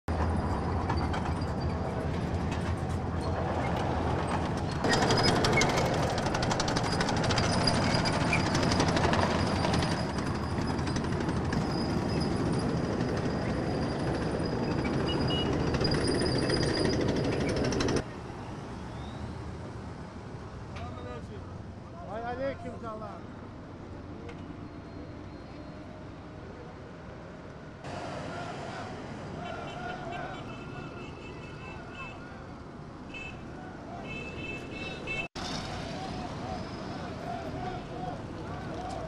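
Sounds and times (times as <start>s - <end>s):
tracks clanking and rattling: 0.1s - 18.1s
vehicle engines running: 0.1s - 18.8s, 27.8s - 39.0s.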